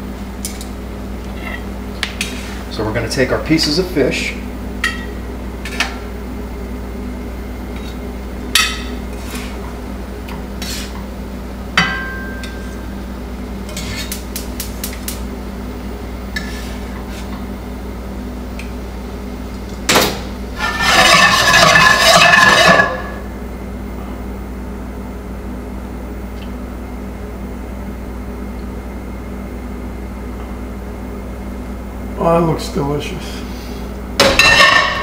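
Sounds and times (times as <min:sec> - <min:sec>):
steady low hum: 0:00.0 - 0:35.0
skillet clanking on grate: 0:20.6 - 0:23.1
metal scraping: 0:20.6 - 0:23.2.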